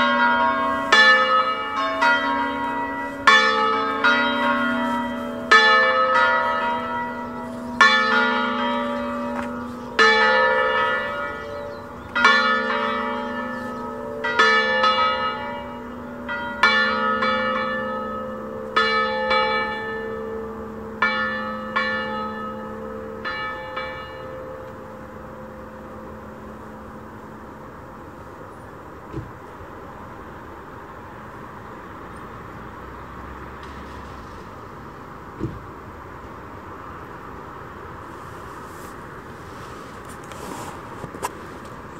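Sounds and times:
church bells pealing: 0.0s - 28.4s.

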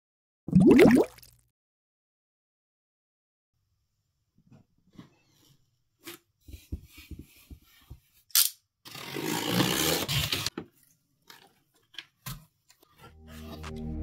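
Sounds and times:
tearing cardboard and packing tape: 8.3s - 10.5s
cardboard ripping: 8.9s - 10.5s.

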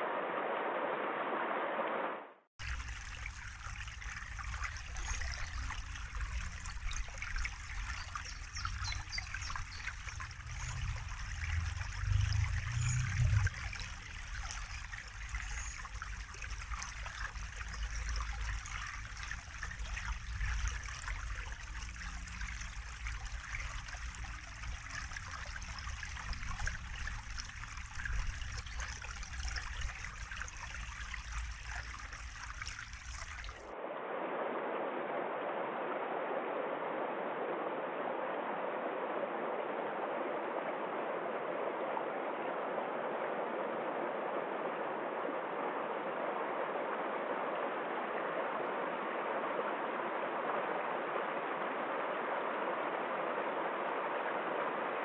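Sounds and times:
mountain stream rushing over cascades: 2.6s - 24.4s
brook babbling and trickling: 2.6s - 33.7s.

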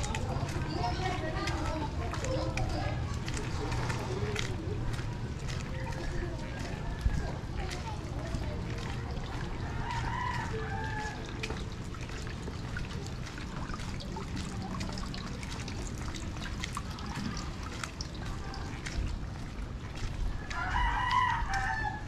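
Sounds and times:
water dripping and splashing: 0.0s - 22.0s
rain: 7.5s - 22.0s
rooster crowing: 9.7s - 11.2s, 20.5s - 22.0s.

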